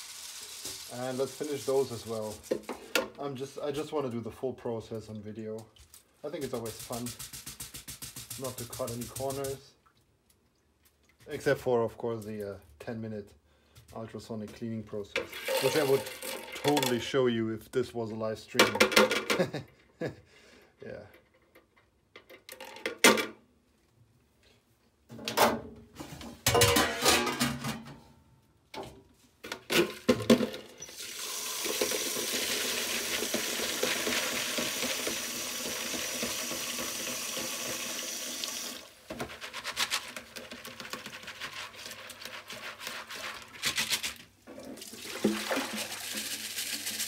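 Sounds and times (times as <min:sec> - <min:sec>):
water running from hose: 0:00.0 - 0:02.5, 0:06.3 - 0:09.6, 0:15.4 - 0:16.6, 0:30.9 - 0:43.7, 0:44.6 - 0:47.0
plastic parts clattering in baskets: 0:15.2 - 0:17.1, 0:26.4 - 0:27.9, 0:29.4 - 0:30.8.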